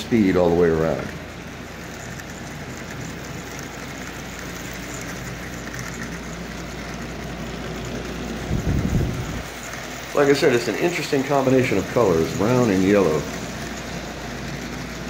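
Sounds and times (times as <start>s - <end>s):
toy train humming and rolling: 0.0s - 15.0s
low rumble: 8.4s - 9.5s.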